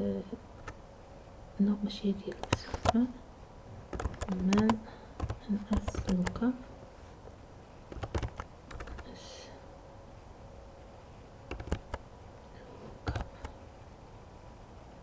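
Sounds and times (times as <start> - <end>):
computer keyboard keystrokes: 2.3 - 3.0, 3.9 - 6.4, 7.9 - 9.1, 11.5 - 12.0, 13.1 - 13.6.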